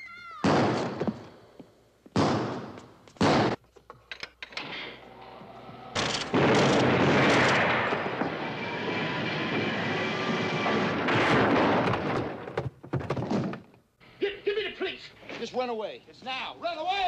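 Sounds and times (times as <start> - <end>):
gunfire: 0.4 - 1.2, 2.2 - 3.6, 6.0 - 8.4, 10.8 - 12.6.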